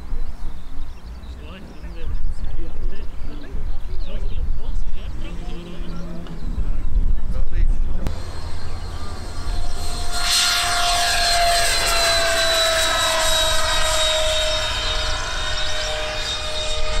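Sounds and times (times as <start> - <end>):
model aircraft motor whining: 8.1 - 17.0.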